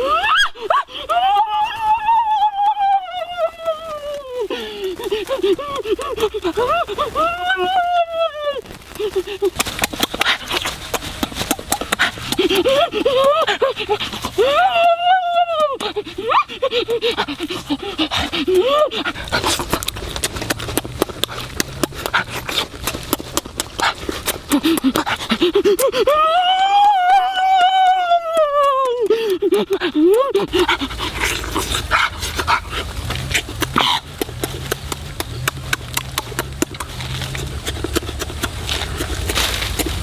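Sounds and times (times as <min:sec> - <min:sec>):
high wavering vocal cry: 0:00.0 - 0:09.6, 0:11.5 - 0:19.8, 0:24.5 - 0:34.1
wet chewing and lip-smacking: 0:04.3 - 0:07.3, 0:08.8 - 0:14.5, 0:15.5 - 0:26.2, 0:28.2 - 0:40.0.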